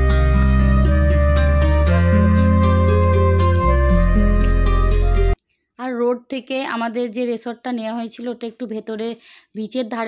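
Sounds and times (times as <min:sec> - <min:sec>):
gentle instrumental music: 0:00.0 - 0:05.4.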